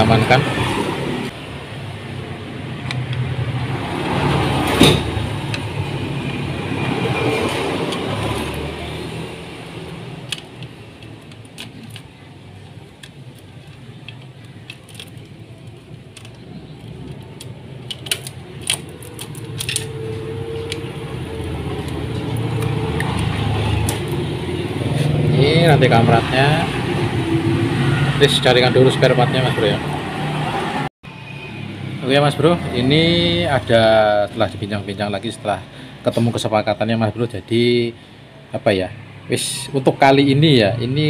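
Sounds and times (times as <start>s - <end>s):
metallic clicks of engine parts: 9.6s - 24.2s.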